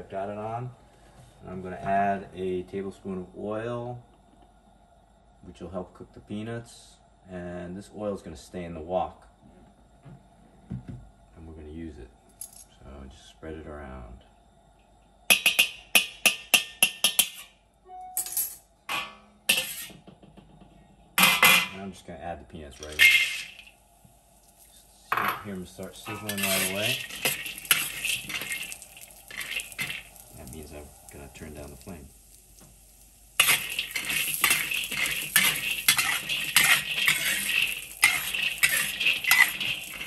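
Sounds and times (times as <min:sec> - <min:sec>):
ladle scraping wok: 0:19.5 - 0:20.0, 0:22.8 - 0:23.7, 0:24.6 - 0:32.2, 0:33.4 - 0:40.0.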